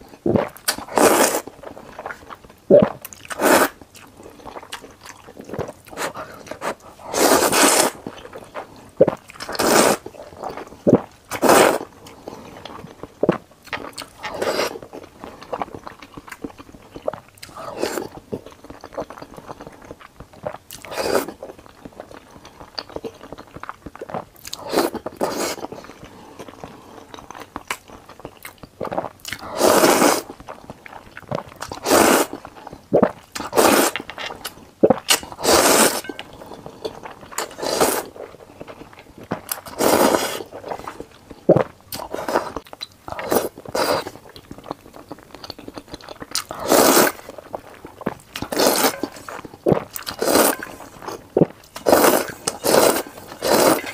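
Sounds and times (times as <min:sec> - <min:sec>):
chewing: 0:00.1 - 0:53.9
person slurping noodles: 0:00.3 - 0:01.5, 0:02.7 - 0:03.8, 0:06.0 - 0:08.0, 0:09.0 - 0:10.1, 0:10.9 - 0:11.9, 0:14.2 - 0:14.8, 0:20.9 - 0:21.4, 0:24.5 - 0:25.7, 0:28.9 - 0:30.3, 0:31.7 - 0:32.4, 0:33.0 - 0:34.0, 0:34.8 - 0:36.2, 0:37.4 - 0:38.2, 0:39.6 - 0:44.2, 0:46.5 - 0:47.3, 0:48.4 - 0:53.9.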